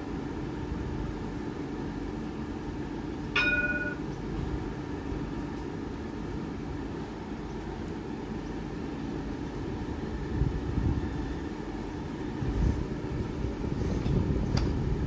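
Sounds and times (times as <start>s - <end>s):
tram humming at platform: 0.0s - 15.0s
bell-like ding: 3.4s - 4.0s.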